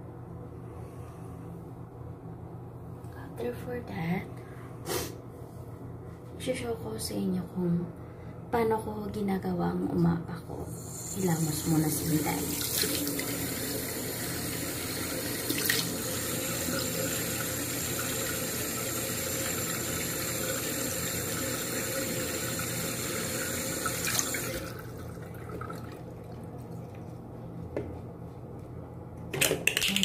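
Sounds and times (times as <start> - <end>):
tap water running into sink: 11.2 - 26.1
face washing by hand: 15.3 - 20.0.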